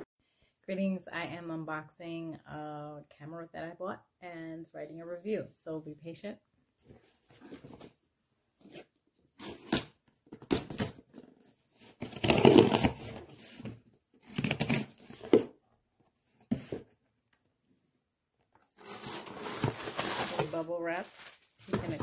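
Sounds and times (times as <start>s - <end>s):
cardboard tearing and rustling: 9.4s - 15.5s, 18.8s - 22.0s.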